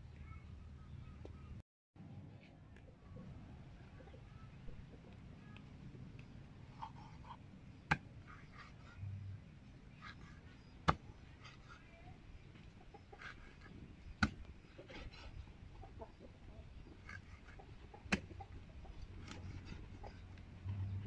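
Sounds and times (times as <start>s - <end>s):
cleaver chopping on wooden board: 14.2s - 14.5s.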